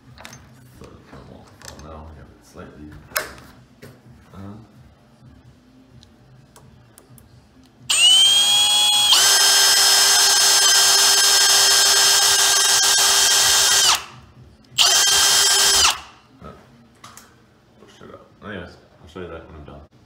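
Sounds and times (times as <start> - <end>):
electric drill whine: 7.9 - 14.2, 14.8 - 16.2.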